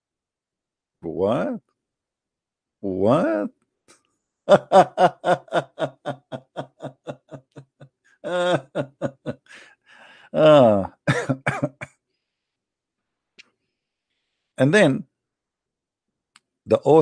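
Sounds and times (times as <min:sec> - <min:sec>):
man laughing: 0:04.5 - 0:11.9.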